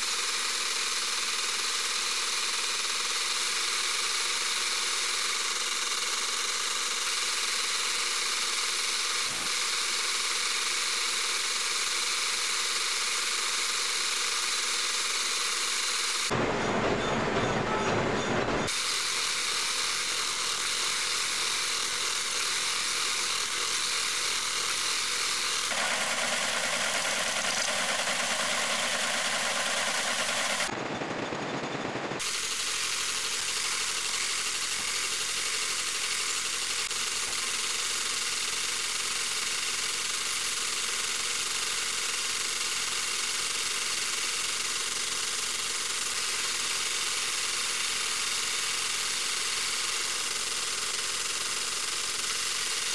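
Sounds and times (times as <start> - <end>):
metal lathe whirring: 20.0 - 30.7.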